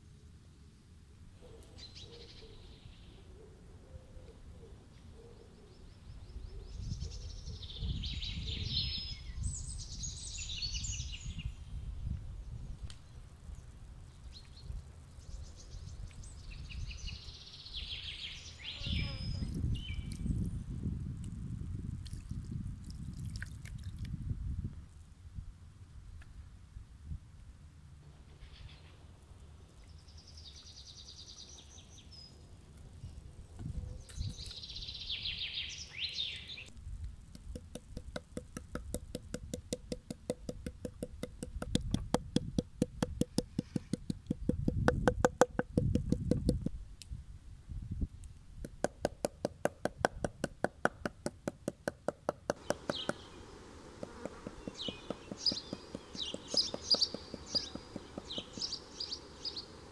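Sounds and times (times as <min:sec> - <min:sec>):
birds chirping: 0:01.4 - 0:20.6, 0:29.6 - 0:36.7, 0:52.5 - 0:59.9.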